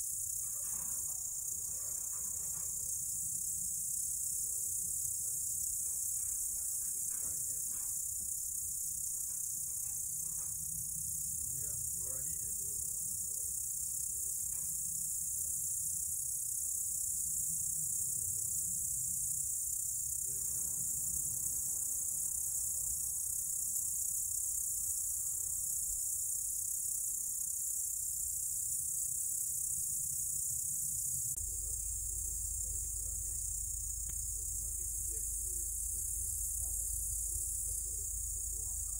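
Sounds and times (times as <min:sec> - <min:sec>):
crickets chirping: 0:00.0 - 0:38.9
low rumble: 0:31.4 - 0:38.9.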